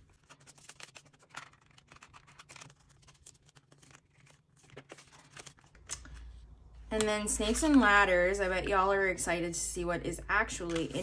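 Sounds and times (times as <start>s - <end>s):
binder pages turning: 0.0s - 7.9s, 10.5s - 11.0s
banknotes and plastic sleeves crinkling: 0.0s - 8.0s, 10.5s - 11.0s.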